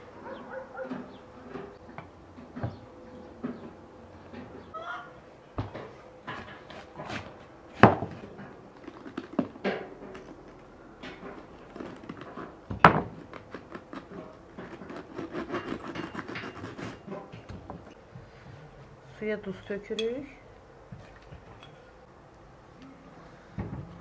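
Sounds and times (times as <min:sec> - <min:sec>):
knife cutting cabbage on board: 0:06.4 - 0:10.3, 0:11.3 - 0:17.3
cabbage pieces crackling: 0:08.1 - 0:16.0.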